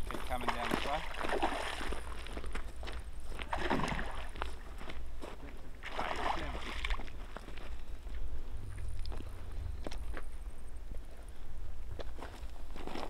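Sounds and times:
fish splashing in water: 0.3 - 2.5, 3.4 - 4.8, 5.8 - 7.4.

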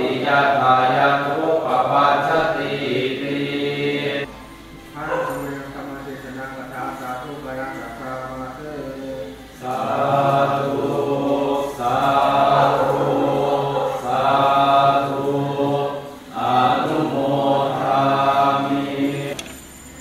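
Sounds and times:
group of voices chanting: 0.0 - 4.4, 7.8 - 19.3.

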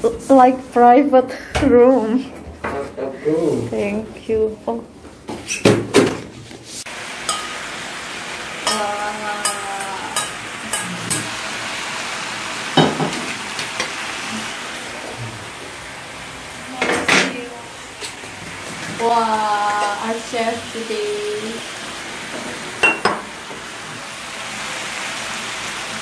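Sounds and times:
food sizzling in a pan: 6.8 - 26.0
ladle clinking on dishes: 22.8 - 23.2.

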